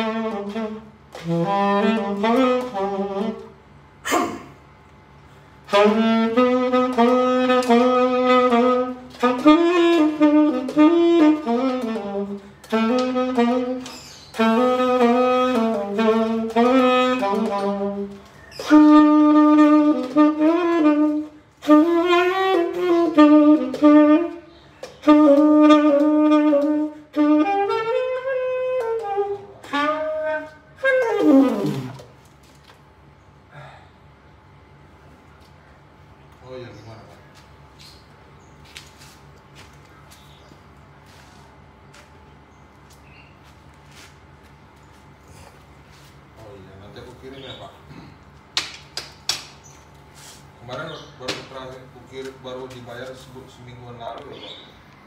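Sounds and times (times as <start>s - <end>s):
tenor saxophone melody: 0.0s - 4.0s, 5.1s - 33.2s.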